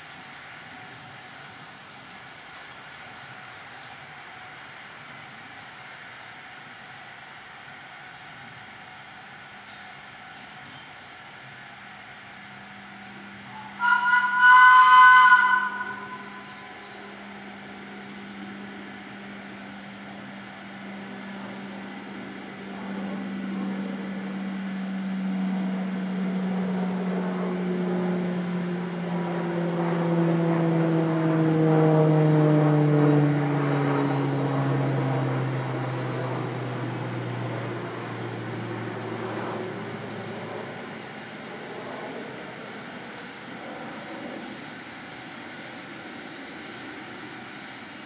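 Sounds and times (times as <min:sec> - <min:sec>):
locomotive engine running: 0:11.8 - 0:43.6
locomotive chime whistle: 0:13.4 - 0:17.7.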